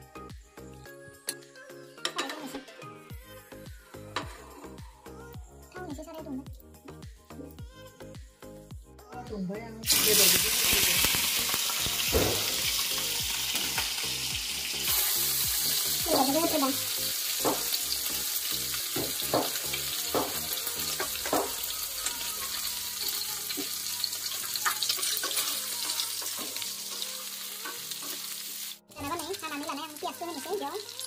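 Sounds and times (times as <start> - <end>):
chicken sizzling in oil: 9.8 - 31.0.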